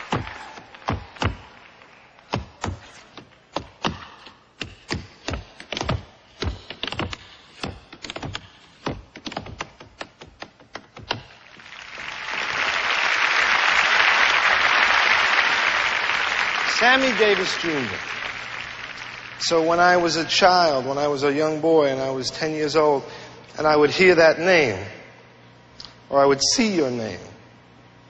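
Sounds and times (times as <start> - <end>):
audience applauding: 0.0 - 2.3, 11.3 - 20.1
sharp taps and knocks: 4.6 - 11.3.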